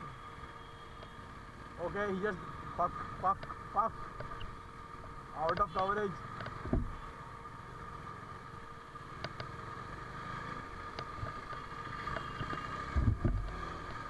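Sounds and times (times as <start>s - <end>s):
motorcycle engine running: 0.0s - 14.0s
low thumps: 6.6s - 7.0s.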